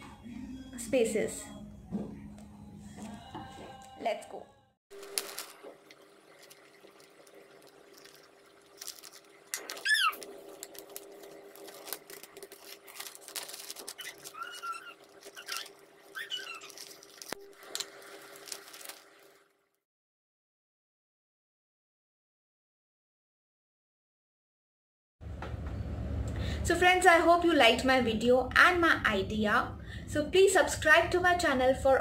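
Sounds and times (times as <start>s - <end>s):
plastic bags crinkling: 5.0s - 19.5s
child squealing: 9.8s - 10.2s, 14.0s - 16.8s.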